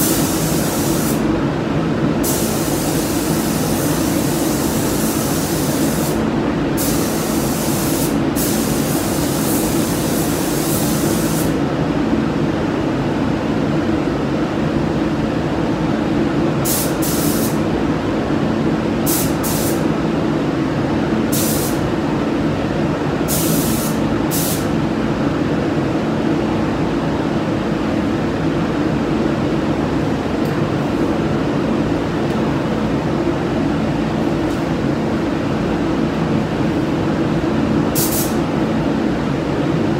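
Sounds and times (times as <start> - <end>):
paint spray gun hissing: 0.0 - 1.2, 2.2 - 6.2, 6.8 - 11.6, 16.7 - 17.6, 19.1 - 19.8, 38.0 - 38.4
ventilation drone: 0.0 - 39.9.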